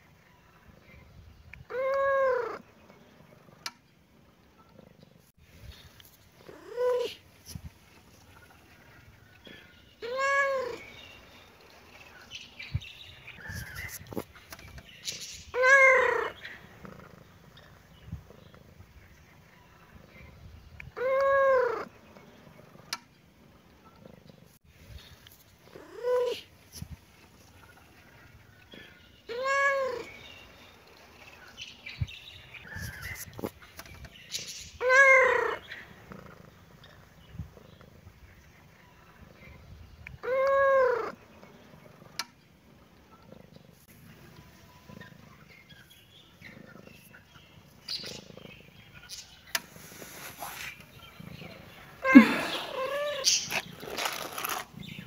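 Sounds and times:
cat meowing: 0:10.0 - 0:10.8, 0:29.3 - 0:30.1, 0:52.0 - 0:53.4.

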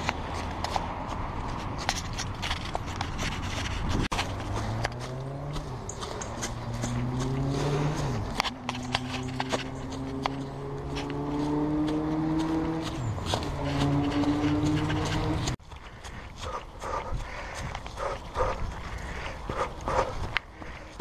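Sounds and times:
vehicle engine accelerating: 0:04.0 - 0:15.6.

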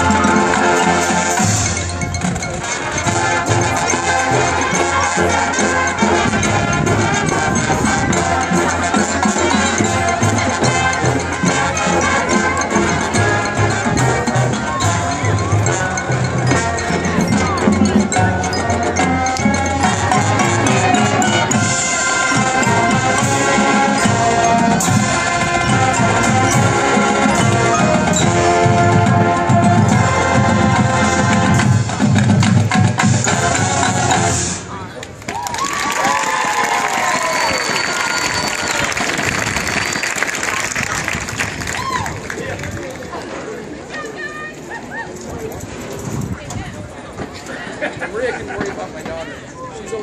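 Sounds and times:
mallet percussion: 0:00.0 - 0:34.6
brass chords: 0:00.0 - 0:34.7
marching band playing: 0:00.0 - 0:34.8
drums: 0:00.0 - 0:43.1.

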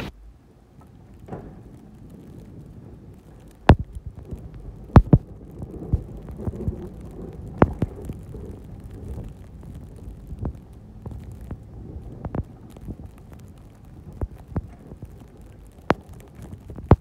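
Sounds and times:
snowplow pushing snow: 0:00.0 - 0:17.0
sharp thumps and knocks: 0:03.6 - 0:06.8.

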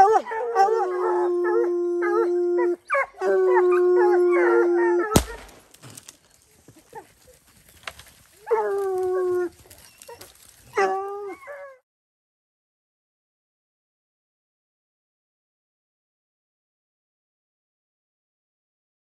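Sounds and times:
gunshot: 0:05.2 - 0:05.8
hounds baying: 0:08.3 - 0:11.8.

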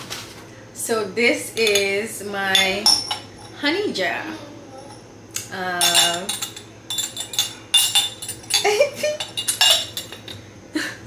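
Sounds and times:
glass lid and dipper clinking: 0:05.8 - 0:10.4.

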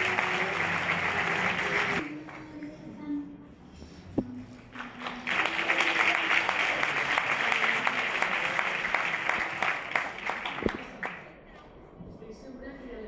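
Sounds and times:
audience applauding: 0:00.0 - 0:02.4, 0:04.7 - 0:11.3.

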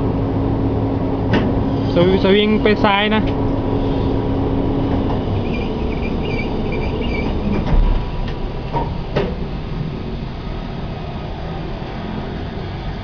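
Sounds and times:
low mechanical rumble: 0:00.0 - 0:13.0
faint squeaks: 0:05.4 - 0:07.6.

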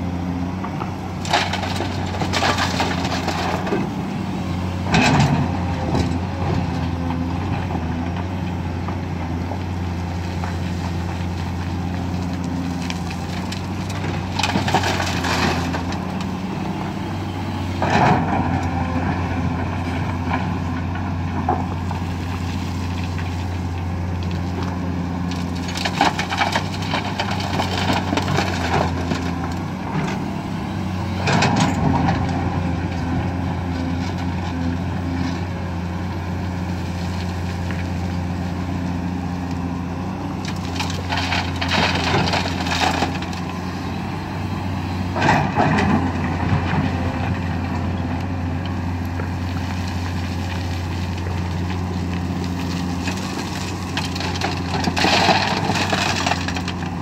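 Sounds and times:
excavator diesel engine running: 0:00.0 - 0:57.0
gravel clattering into truck bed: 0:01.2 - 0:03.9, 0:12.6 - 0:16.0, 0:25.3 - 0:29.3, 0:40.5 - 0:43.4, 0:52.4 - 0:57.0.

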